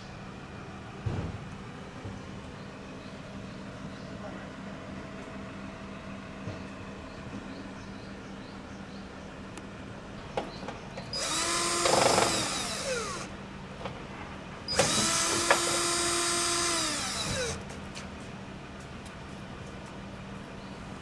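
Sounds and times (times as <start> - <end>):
cordless drill driving screws: 11.1 - 13.3, 14.7 - 17.6.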